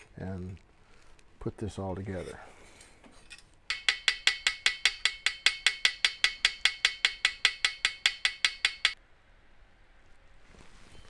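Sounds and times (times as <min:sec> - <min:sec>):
hammer tapping on brass tubing: 0:03.7 - 0:09.0.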